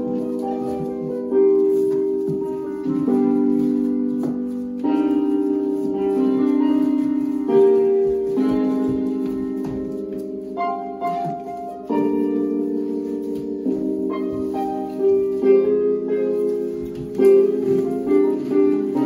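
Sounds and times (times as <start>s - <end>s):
slow piano chords: 0.0s - 19.0s.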